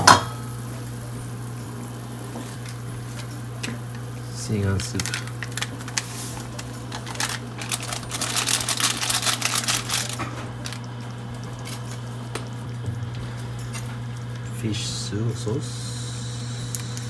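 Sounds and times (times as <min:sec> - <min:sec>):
steady low hum: 0:00.0 - 0:17.0
foil sachet crinkling: 0:02.5 - 0:12.6.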